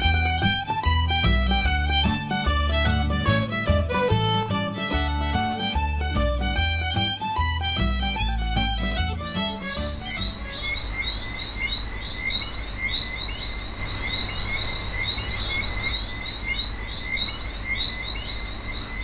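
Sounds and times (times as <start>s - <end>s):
frogs chirping: 9.8s - 19.0s.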